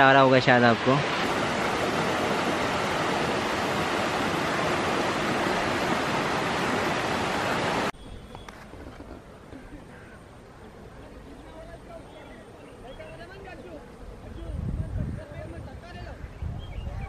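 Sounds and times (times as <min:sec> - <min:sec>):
mountain stream rushing over rocks: 0:00.0 - 0:07.9
quiet outdoor background: 0:00.0 - 0:17.0.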